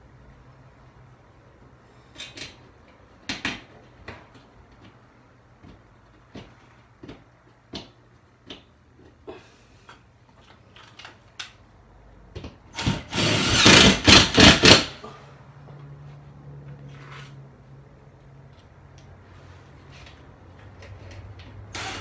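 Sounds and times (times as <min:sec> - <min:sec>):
cordless drill driving screws: 0:12.8 - 0:14.8, 0:21.7 - 0:22.0.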